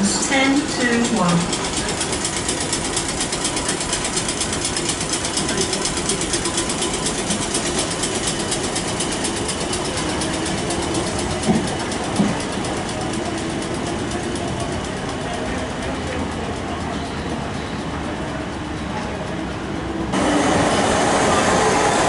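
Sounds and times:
electric train ticking and humming: 0:00.0 - 0:22.0.

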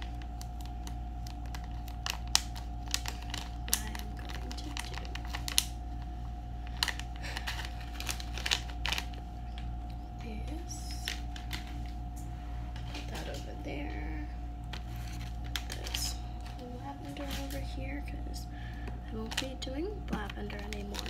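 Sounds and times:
plastic foil pouch crinkling: 0:00.0 - 0:09.8, 0:10.9 - 0:12.0, 0:14.6 - 0:17.9, 0:19.1 - 0:21.0
steady hum: 0:00.0 - 0:21.0.

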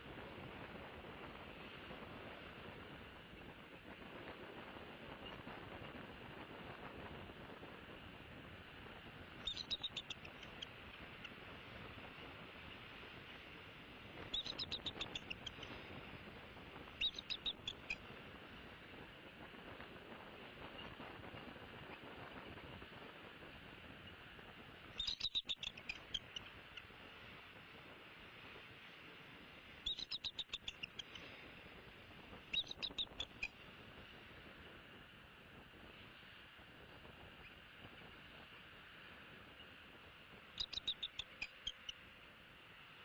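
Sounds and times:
faint steady hiss: 0:00.0 - 0:43.0
bird chirping: 0:09.4 - 0:11.4, 0:14.2 - 0:15.9, 0:16.9 - 0:18.1, 0:25.0 - 0:26.6, 0:29.8 - 0:31.3, 0:32.5 - 0:33.5, 0:40.6 - 0:41.9
eagle chittering call: 0:09.4 - 0:11.4, 0:14.2 - 0:15.9, 0:17.0 - 0:18.0, 0:25.0 - 0:26.4, 0:29.8 - 0:31.4, 0:32.5 - 0:33.5, 0:40.6 - 0:41.9.

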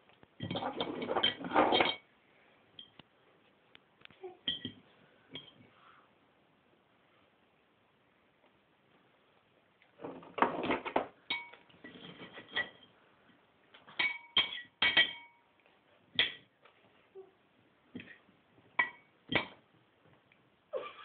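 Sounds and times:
cutlery clinking on a plate: 0:11.3 - 0:12.9, 0:13.9 - 0:15.5
cutlery scraping a plate: 0:11.4 - 0:12.9.

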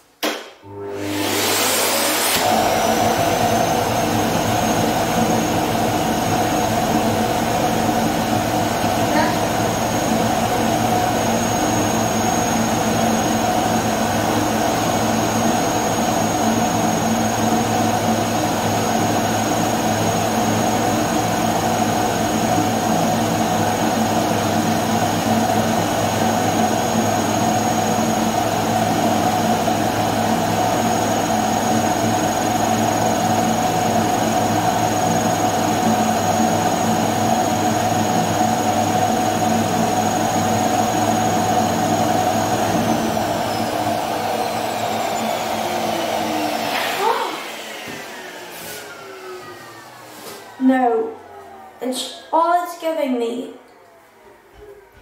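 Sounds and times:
vacuum cleaner motor running: 0:00.6 - 0:52.3.

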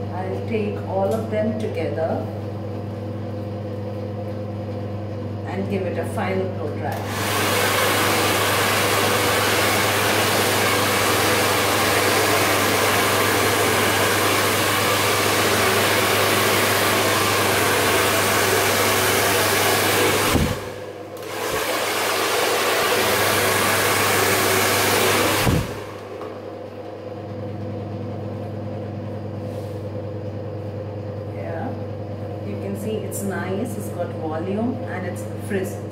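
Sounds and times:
hair dryer blowing: 0:06.6 - 0:27.2
motor winding down: 0:06.7 - 0:26.7.

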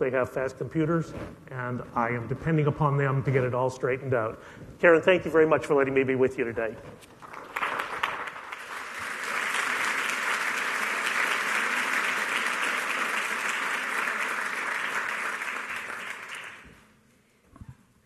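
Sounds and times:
audience applauding: 0:07.2 - 0:16.9.

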